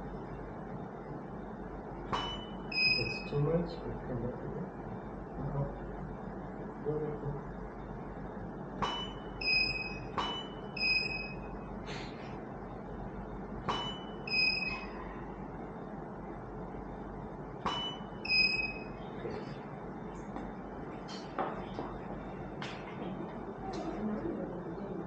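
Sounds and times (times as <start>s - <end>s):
short high electronic beeps: 2.2s - 3.3s, 8.8s - 11.5s, 13.7s - 15.0s, 17.7s - 19.0s.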